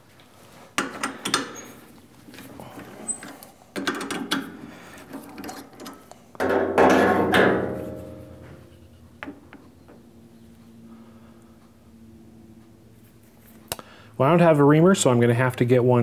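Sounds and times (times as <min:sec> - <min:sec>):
faint steady hum: 0:00.0 - 0:16.0
loud ringing metal clank: 0:06.4 - 0:08.9.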